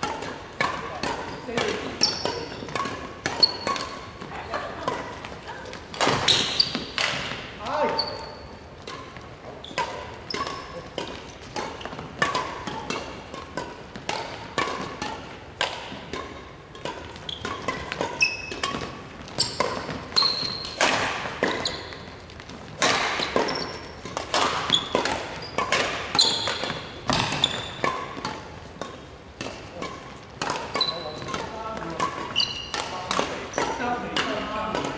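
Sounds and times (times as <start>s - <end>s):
rackets striking shuttlecocks: 0.0s - 34.9s
shoes squeaking on wooden floor: 0.8s - 12.9s, 16.6s - 28.8s, 30.0s - 34.1s.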